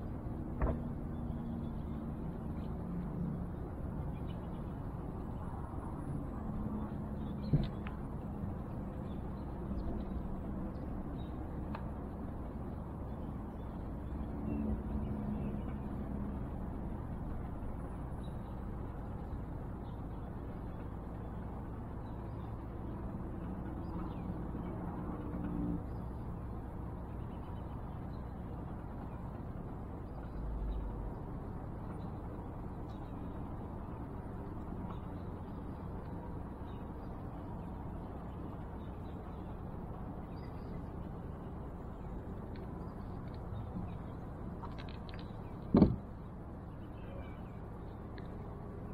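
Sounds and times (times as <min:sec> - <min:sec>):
low rumbling background noise: 0:00.0 - 0:48.9
dull low thump: 0:00.5 - 0:01.0, 0:45.7 - 0:46.1.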